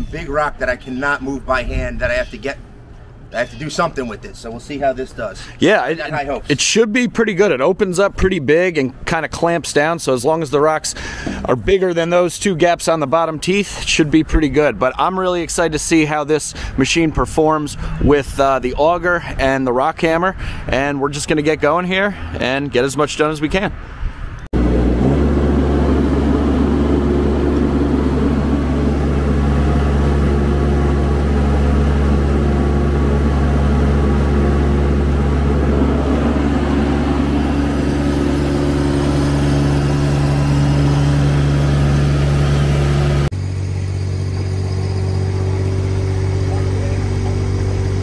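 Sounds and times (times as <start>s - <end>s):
skid steer engine running: 24.6s - 48.0s.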